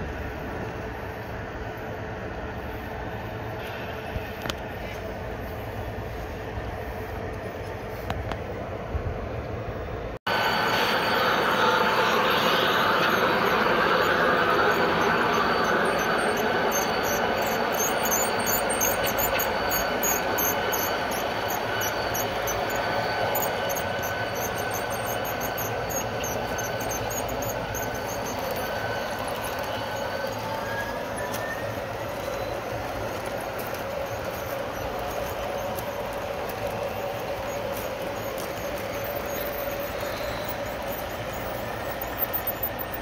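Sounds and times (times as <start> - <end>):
wheels rumbling on rail: 0.0 - 43.0
high wheel squeal: 10.3 - 43.0.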